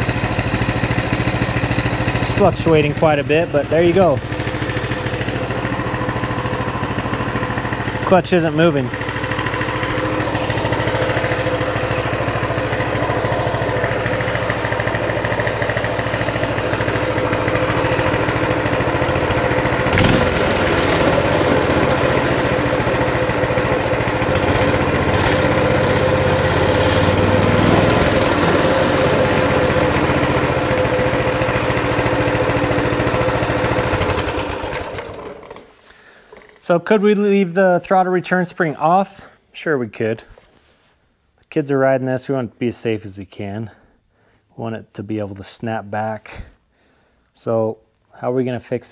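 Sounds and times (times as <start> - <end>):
small engine idling: 0.0 - 36.6.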